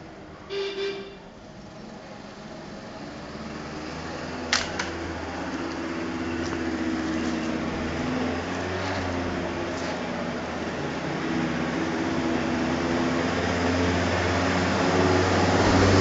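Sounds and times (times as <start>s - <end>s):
engine humming: 0.0s - 16.0s
sharp clicks: 4.5s - 5.1s.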